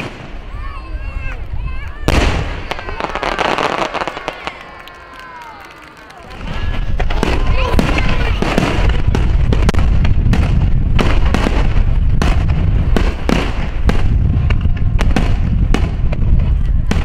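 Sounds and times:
low rumble: 6.3s - 17.0s.

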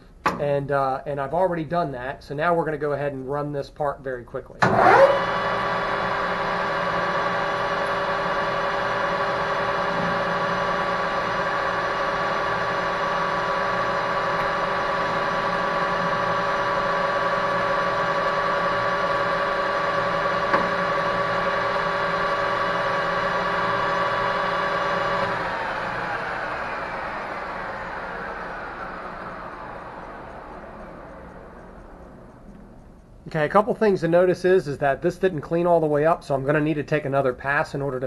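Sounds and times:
metal lathe whining: 4.6s - 33.1s
click: 29.5s - 33.3s.

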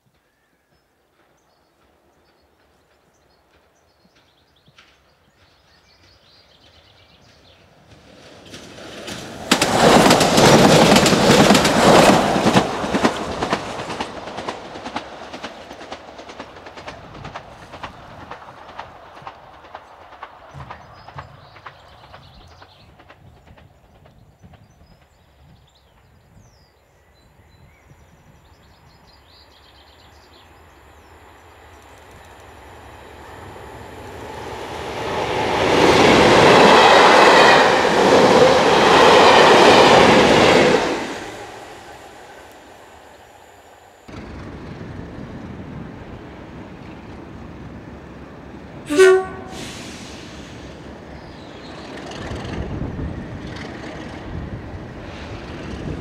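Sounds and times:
train passing at speed: 0.0s - 56.0s
distant diesel locomotive running: 1.1s - 56.0s
locomotive horn blast: 48.9s - 50.1s.

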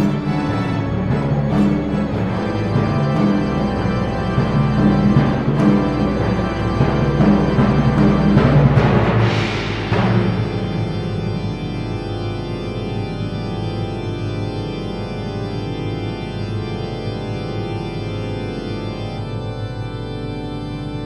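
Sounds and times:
organ sustained chord: 0.0s - 21.0s
low rumble: 4.6s - 12.1s.

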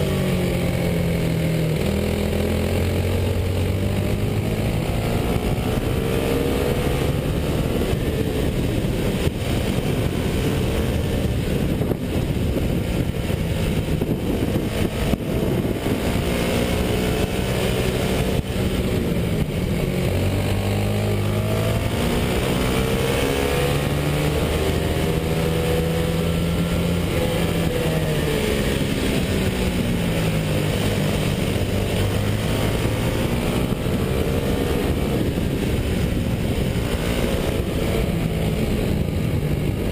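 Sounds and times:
kart engine accelerating and slowing: 0.0s - 39.9s.

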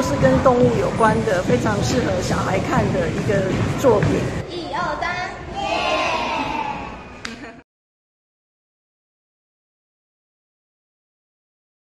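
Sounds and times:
children's voices: 4.2s - 7.3s.

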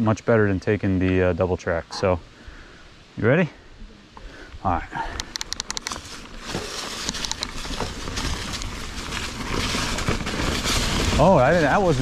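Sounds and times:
quick clicks: 5.2s - 6.0s
bike tyres crunching over leaves: 5.8s - 12.0s.

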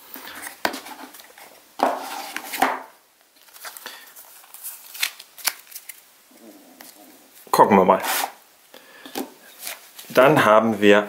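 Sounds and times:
cards rustling and clicking: 3.4s - 6.0s.

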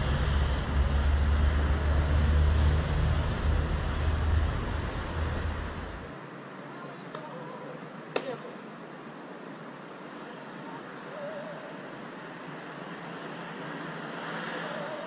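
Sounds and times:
low outdoor rumble: 0.0s - 8.1s.

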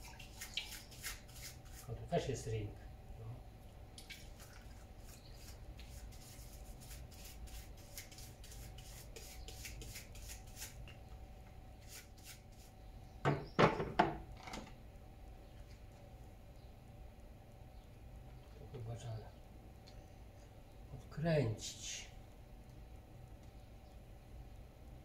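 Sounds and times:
brush scrubbing in water: 0.0s - 2.0s, 4.2s - 10.8s.

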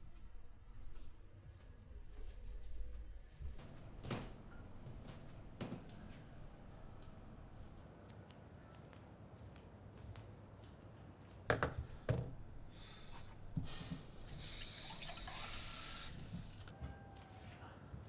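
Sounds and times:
tap water running into cup: 14.3s - 16.5s.

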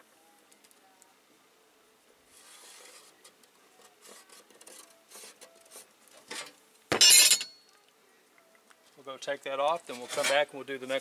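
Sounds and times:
marker scratching on sheet metal: 2.3s - 6.5s.

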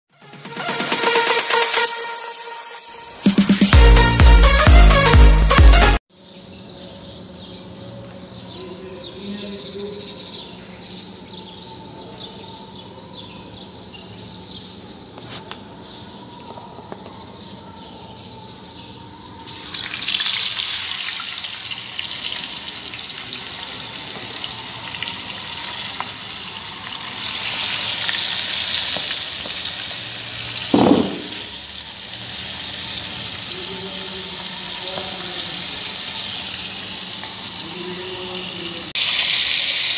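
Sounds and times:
fish frying in hot oil: 19.5s - 39.9s
sharp knock: 30.8s - 31.5s.

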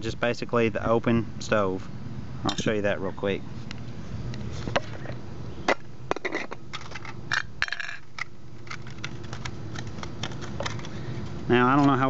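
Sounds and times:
metal tent stakes clinking: 2.5s - 2.8s
sheet-metal windscreen clicking and crinkling: 8.0s - 12.0s.

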